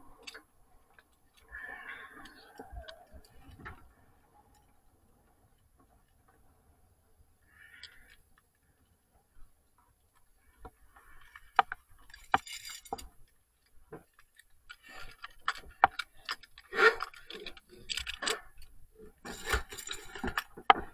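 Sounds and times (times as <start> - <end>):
metal gear clinking: 12.0 - 13.1.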